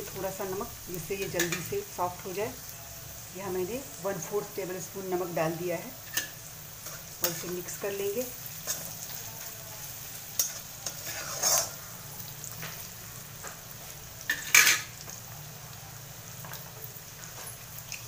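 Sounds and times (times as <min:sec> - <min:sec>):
vegetables sizzling in a pan: 0:00.0 - 0:18.0
spatula scraping metal pan: 0:10.4 - 0:11.8
sharp metal scrape: 0:10.8 - 0:11.8.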